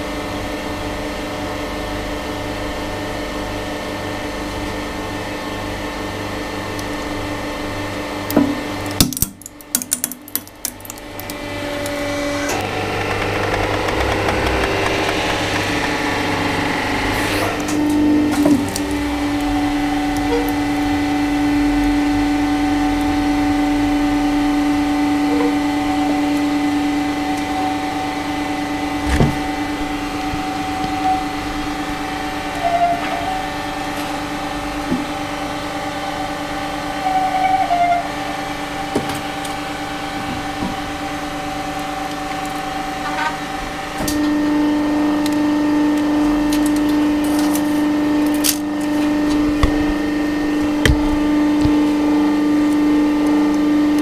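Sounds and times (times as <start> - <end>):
hydraulic pump motor humming: 10.5 - 32.6, 45.3 - 54.0.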